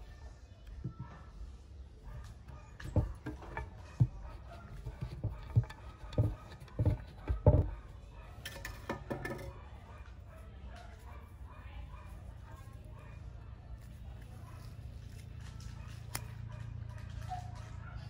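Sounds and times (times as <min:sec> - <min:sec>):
knife chopping fruit on stone: 0:02.7 - 0:07.8.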